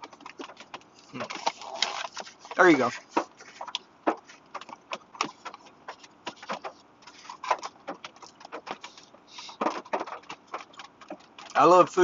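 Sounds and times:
man chewing with wet mouth clicks: 3.1s - 11.6s.

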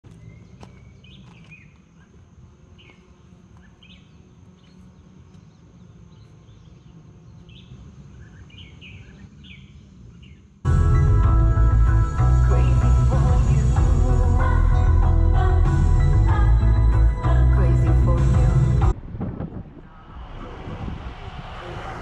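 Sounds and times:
birds chirping: 0.0s - 17.2s
high-pitched hum: 10.7s - 22.0s
low rumble: 10.7s - 22.0s.

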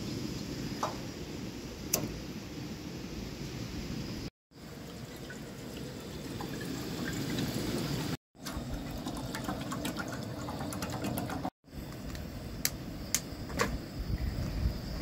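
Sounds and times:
water pouring into a saucepan: 4.6s - 11.5s.

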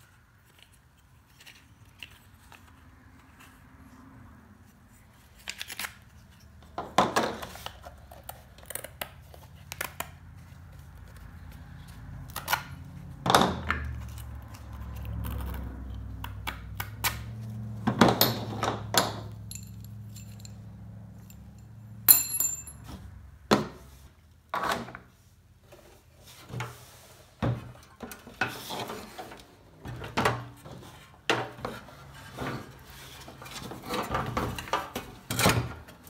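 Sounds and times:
metal parts clinking on a table: 18.2s - 22.8s.

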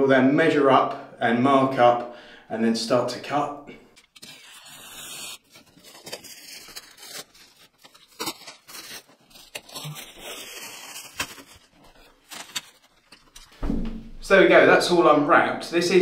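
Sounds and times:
cellophane crinkling and tearing: 4.0s - 13.6s.

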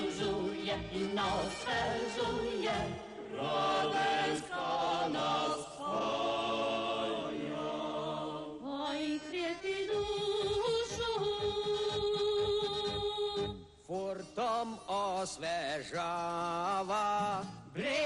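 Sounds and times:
choir singing held notes: 0.0s - 10.1s.

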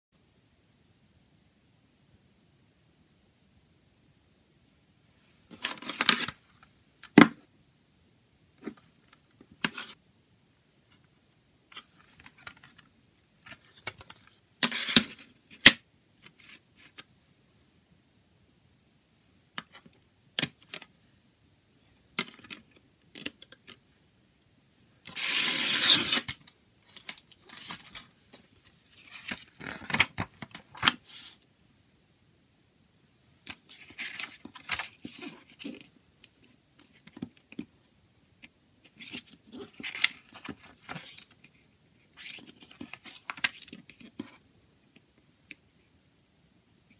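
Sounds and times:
paper rustling: 5.5s - 6.4s, 25.1s - 31.4s, 33.5s - 35.9s, 38.9s - 44.4s.

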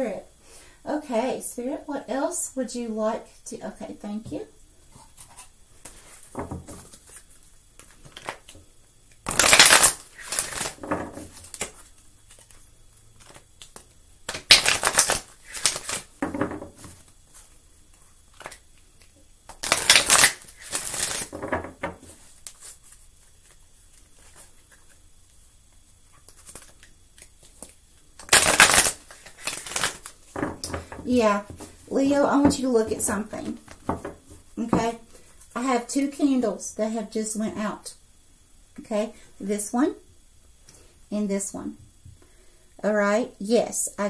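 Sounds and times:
cards being shuffled: 5.1s - 25.0s, 26.0s - 35.5s.

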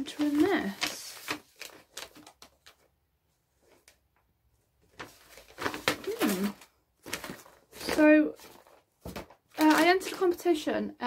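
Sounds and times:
packaging crinkling and rustling: 0.0s - 2.9s, 4.8s - 10.4s.

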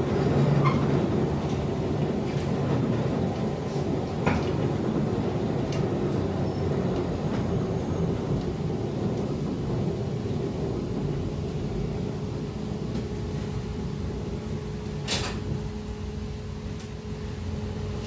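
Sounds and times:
trolleybus interior rumble: 0.0s - 18.0s.

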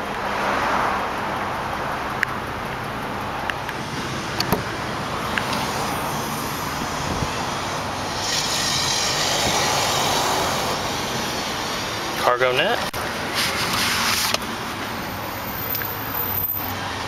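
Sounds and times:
car engine idling: 0.0s - 13.3s.

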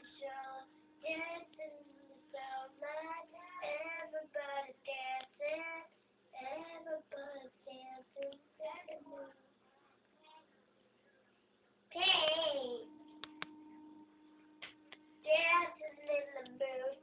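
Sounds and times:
girl singing: 0.0s - 10.4s, 11.9s - 12.9s, 15.2s - 17.0s.

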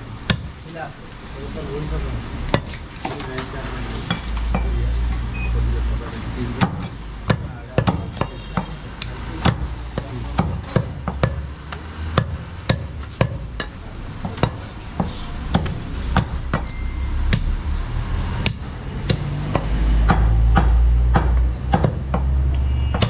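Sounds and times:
cleaver chopping meat on wood: 6.6s - 16.7s, 18.4s - 23.0s
deep rumble: 13.4s - 21.3s.

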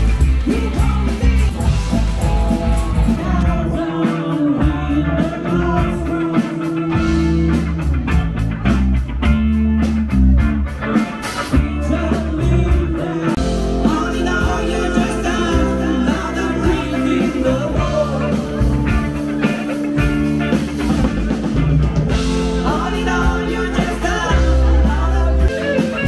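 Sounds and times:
bass guitar: 0.0s - 26.0s
distorted electric guitars: 0.0s - 26.0s
drum kit: 0.0s - 26.0s.

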